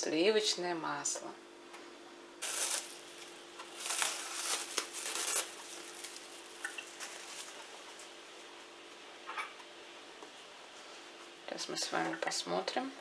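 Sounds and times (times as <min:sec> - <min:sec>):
cling film crinkling: 0:02.4 - 0:08.6.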